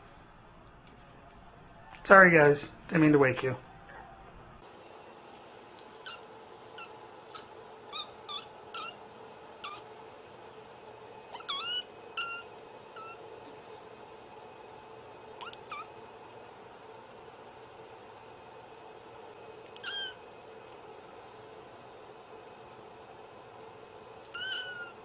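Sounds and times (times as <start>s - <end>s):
kitten meowing: 6.0s - 6.2s, 6.8s - 9.0s, 9.6s - 9.9s, 11.3s - 13.2s, 15.4s - 15.9s, 19.8s - 20.2s, 24.3s - 25.0s.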